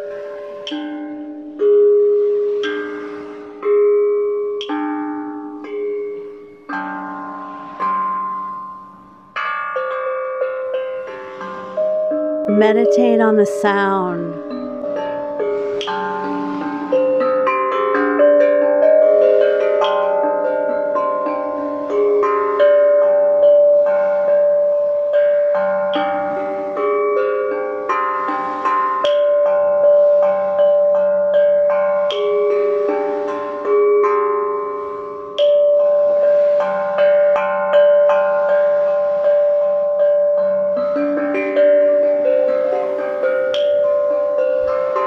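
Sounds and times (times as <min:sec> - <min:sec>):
steel tongue drum melody: 0:00.0 - 0:45.0.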